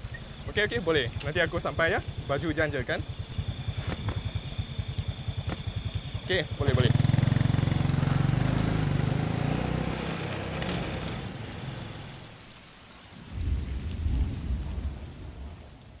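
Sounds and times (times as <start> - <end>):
motorcycle engine idling: 0.0 - 12.3
steady rain falling: 0.0 - 16.0.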